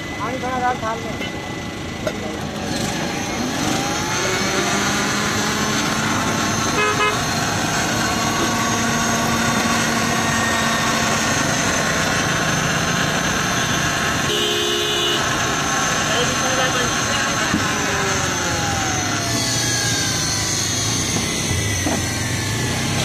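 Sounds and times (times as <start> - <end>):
blender running: 0.2 - 23.0
vehicle horn toot: 6.7 - 7.3, 14.2 - 15.4.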